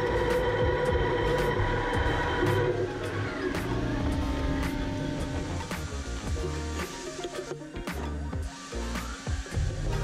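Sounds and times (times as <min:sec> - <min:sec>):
metal lathe running: 0:00.0 - 0:07.4.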